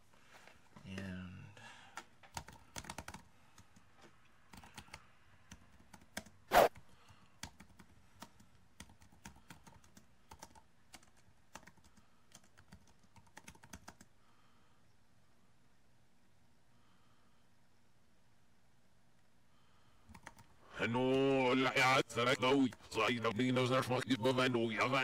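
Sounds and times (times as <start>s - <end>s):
typing on keyboard: 2.0s - 3.8s, 4.5s - 6.4s, 7.1s - 14.1s, 20.1s - 20.5s.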